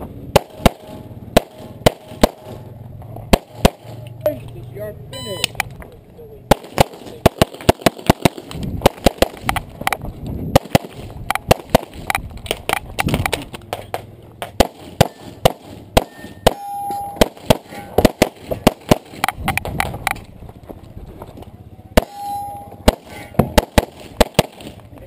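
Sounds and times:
pistol shots: 0:00.3 - 0:02.7, 0:03.3 - 0:04.0, 0:06.5 - 0:09.6, 0:10.5 - 0:12.2, 0:14.4 - 0:19.6, 0:22.0 - 0:24.8
metallic clangs on steel targets: 0:16.0 - 0:18.1, 0:22.0 - 0:23.7.

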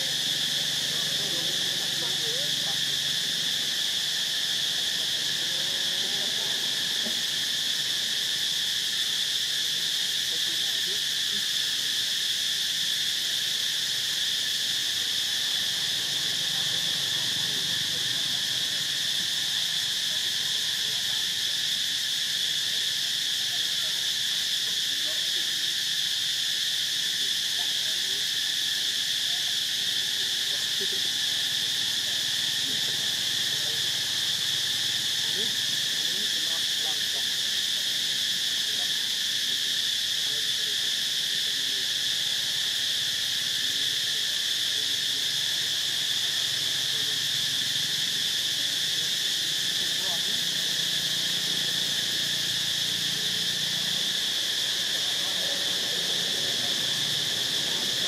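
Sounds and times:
insect chorus drone: 0:00.0 - 0:58.0.

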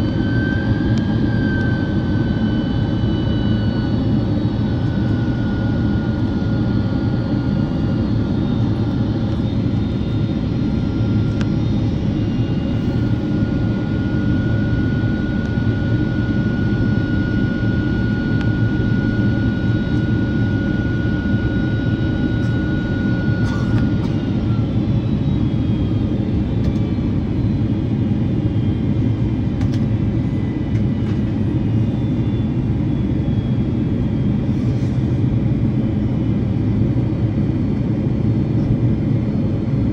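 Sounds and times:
faint engine whines: 0:00.0 - 0:39.9
jet engine cabin rumble: 0:00.0 - 0:39.9.

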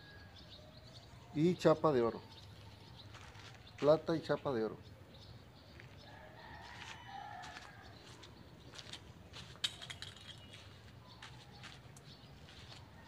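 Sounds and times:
flip-flop footsteps: 0:03.0 - 0:03.9, 0:05.7 - 0:13.0.

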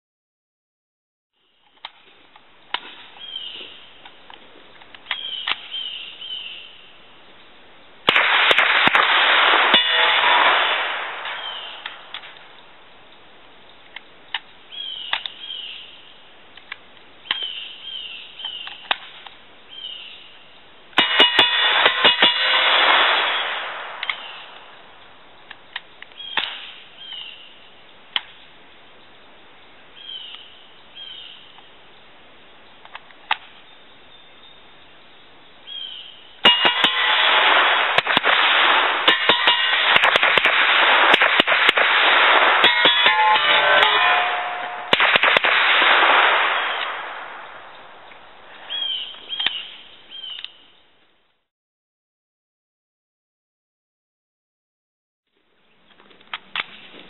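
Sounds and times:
gun handling clicks: 0:04.0 - 0:05.7, 0:15.1 - 0:15.4, 0:32.8 - 0:33.5, 0:50.3 - 0:50.6
suppressed rifle shots: 0:08.1 - 0:12.4, 0:36.4 - 0:48.2.

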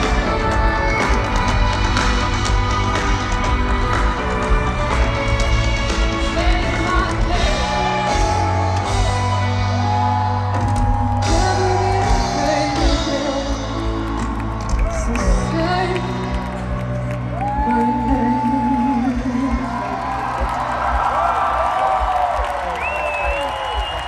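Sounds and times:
live band playing: 0:00.0 - 0:21.0
woman singing long notes: 0:17.4 - 0:20.1.

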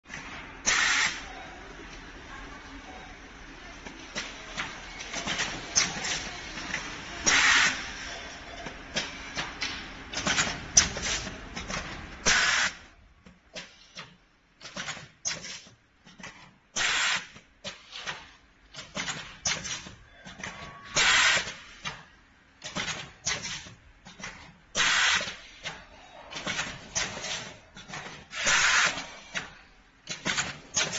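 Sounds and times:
pneumatic cylinders actuating: 0:00.6 - 0:01.3, 0:07.2 - 0:07.9, 0:12.2 - 0:12.8, 0:16.8 - 0:18.2, 0:18.9 - 0:22.0, 0:24.7 - 0:30.9.

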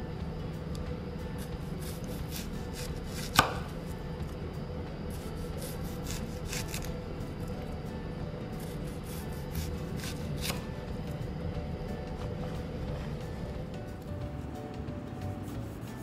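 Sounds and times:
steady low hum: 0:00.0 - 0:16.0
knife cutting on a board: 0:01.8 - 0:03.7, 0:05.2 - 0:06.9, 0:08.6 - 0:10.6.

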